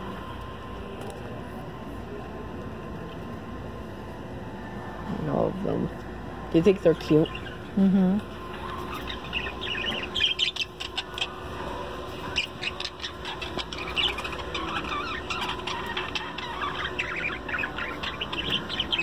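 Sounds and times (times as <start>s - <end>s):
faint steady hum: 0.0s - 19.0s
budgerigars chirping: 6.9s - 7.6s, 8.8s - 11.5s, 12.1s - 19.0s.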